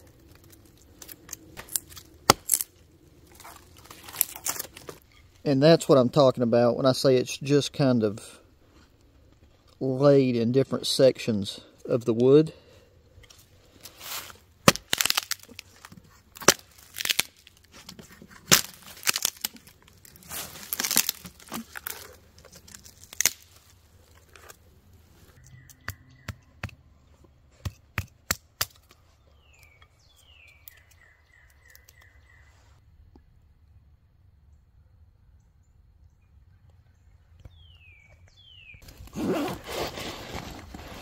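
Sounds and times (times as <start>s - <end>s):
wood tearing and splintering: 0.0s - 5.0s, 13.8s - 24.7s
hatchet chopping wood: 14.6s - 15.4s, 27.6s - 28.9s
wood snapping and clicking: 14.7s - 17.6s, 18.4s - 24.2s
bird chirping: 25.3s - 27.5s, 29.0s - 32.8s, 34.5s - 39.5s.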